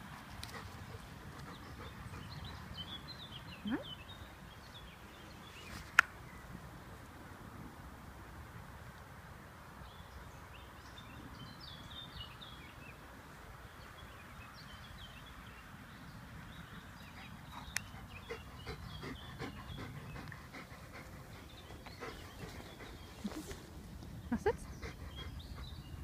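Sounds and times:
steady outdoor hiss: 0:00.0 - 0:26.0
dog panting: 0:00.4 - 0:02.8, 0:17.1 - 0:23.7, 0:24.4 - 0:26.0.

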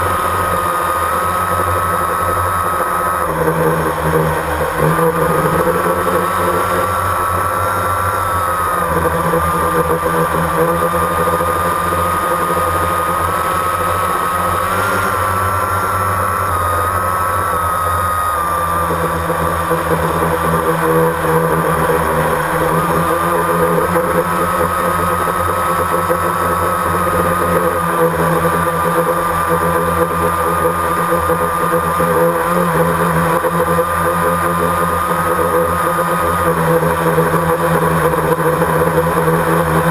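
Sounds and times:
drone motors whining: 0:00.0 - 0:39.9.

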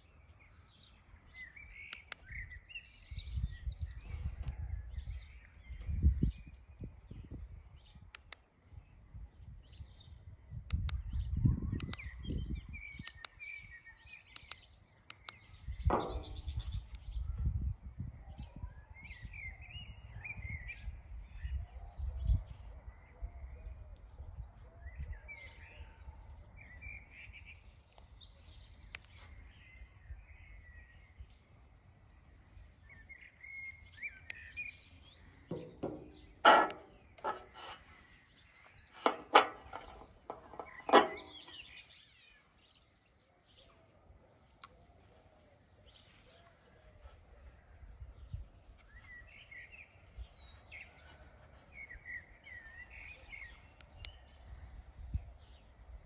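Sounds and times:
birds chirping and singing: 0:00.0 - 0:56.0
bike lights clicking: 0:01.8 - 0:02.3, 0:08.1 - 0:08.4, 0:10.7 - 0:11.1, 0:11.8 - 0:12.1, 0:13.0 - 0:13.4, 0:14.3 - 0:15.4.

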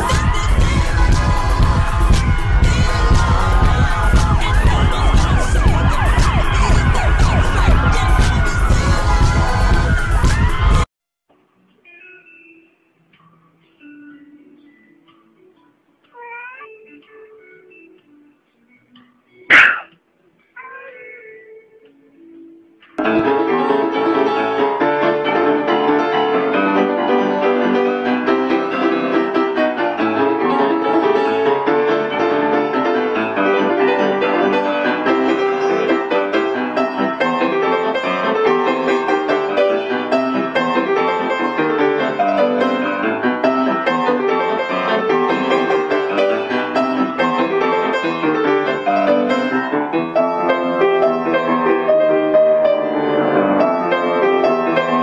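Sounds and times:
piano music: 0:00.0 - 0:10.8, 0:23.0 - 0:55.0.

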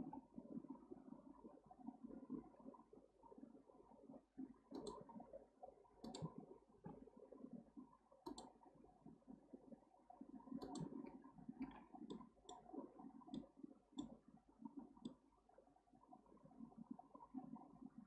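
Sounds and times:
computer mouse and keyboard clicks: 0:04.7 - 0:05.0, 0:06.0 - 0:06.3, 0:08.2 - 0:08.5, 0:10.6 - 0:11.0.

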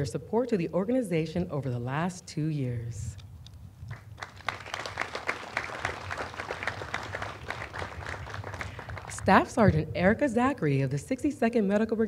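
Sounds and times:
audience applauding: 0:03.9 - 0:09.2.

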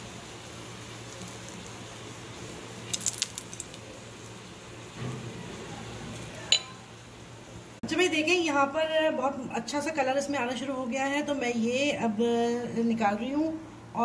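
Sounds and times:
bread frying in oil: 0:00.0 - 0:08.7.

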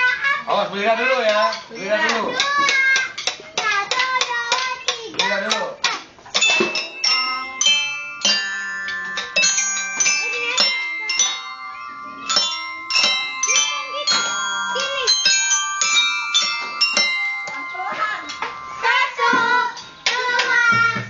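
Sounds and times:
glockenspiel notes ringing: 0:06.4 - 0:21.0.

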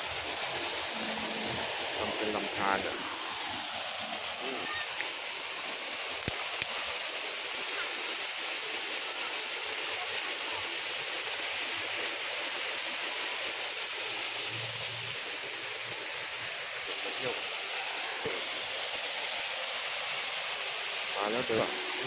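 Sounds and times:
water flowing in stream and waterfall: 0:00.0 - 0:22.0.

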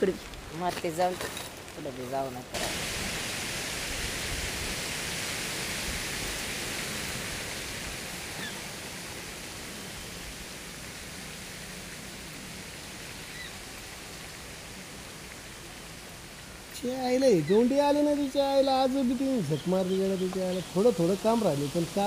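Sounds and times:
outdoor background hiss: 0:00.0 - 0:22.0.

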